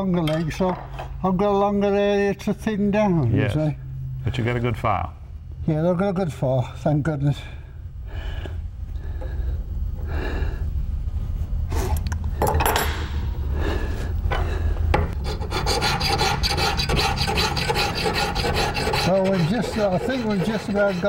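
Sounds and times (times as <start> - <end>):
hand file rasping on steel: 15.2 - 21.0.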